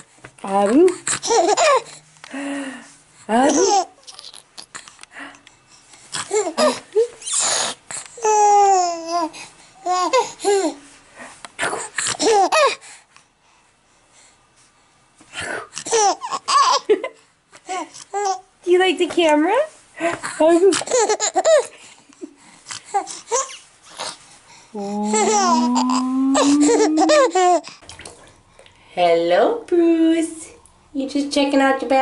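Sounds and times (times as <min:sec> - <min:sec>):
baby laughing: 0:01.2 - 0:02.0, 0:03.5 - 0:04.4, 0:06.2 - 0:10.8, 0:12.1 - 0:12.8, 0:15.8 - 0:16.9, 0:20.7 - 0:21.7, 0:24.8 - 0:27.8
baby babbling: 0:07.4 - 0:10.8, 0:24.8 - 0:27.7.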